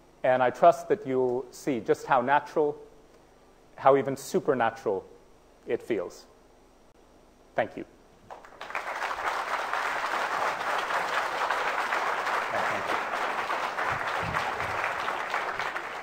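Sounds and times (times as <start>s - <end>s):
audience applauding: 8.3s - 16.0s.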